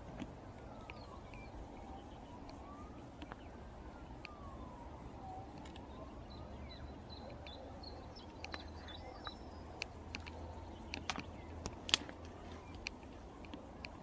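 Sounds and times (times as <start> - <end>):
faint emergency siren wailing: 0.0 - 14.0
steady low rumble: 0.0 - 14.0
bird chirps: 0.7 - 11.6.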